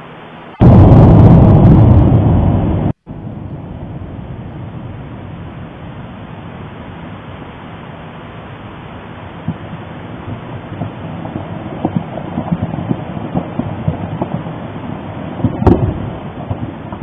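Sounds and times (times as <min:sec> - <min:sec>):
low rumbling: 0:00.6 - 0:17.0
volcanic explosion blast: 0:00.6 - 0:17.0.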